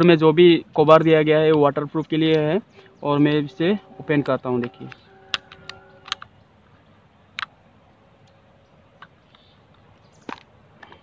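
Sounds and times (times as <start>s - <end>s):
plastic camera housing clicks: 4.9s - 6.3s.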